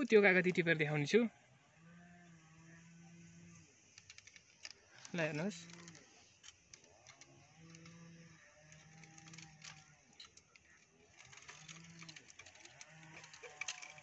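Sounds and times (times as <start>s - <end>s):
twigs rustling against fruit picker: 3.4s - 14.0s.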